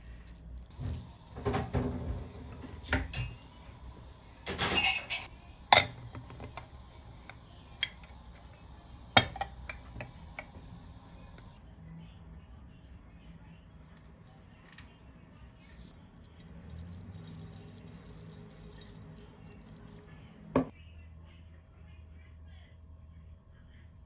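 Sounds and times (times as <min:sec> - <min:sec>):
plate and bowl clinking: 0:04.4 - 0:08.1.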